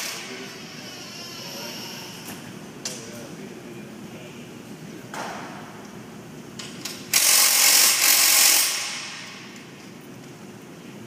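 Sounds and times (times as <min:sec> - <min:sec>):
handheld power tool running: 0:07.1 - 0:09.1.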